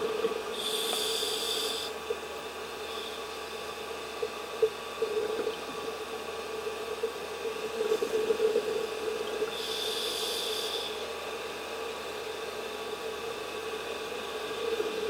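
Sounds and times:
diver's regulator breathing: 0.5 - 2.0, 9.5 - 11.0.

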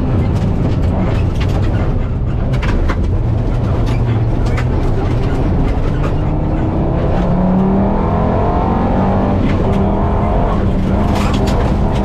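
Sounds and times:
car engine accelerating hard: 0.0 - 12.0
gravel clattering against car: 10.7 - 12.0.

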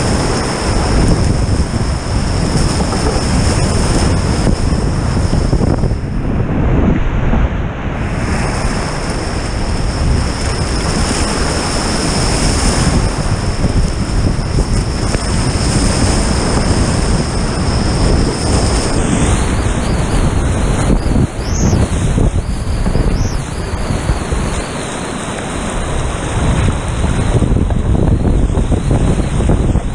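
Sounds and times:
whitewater rapids rushing: 8.6 - 29.9.

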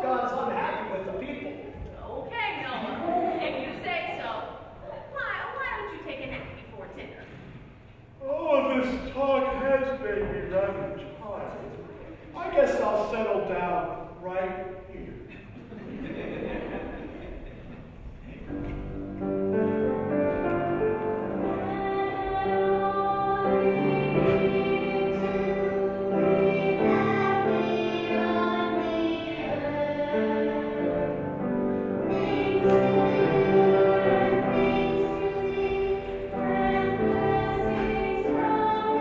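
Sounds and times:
children's choir singing: 19.5 - 39.0.

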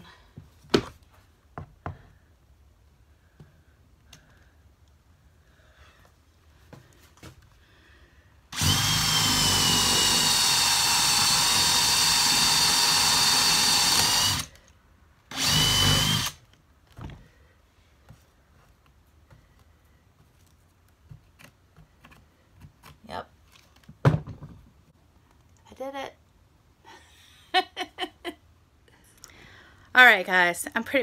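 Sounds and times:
drill whining through wood: 8.5 - 14.7, 15.3 - 16.5.

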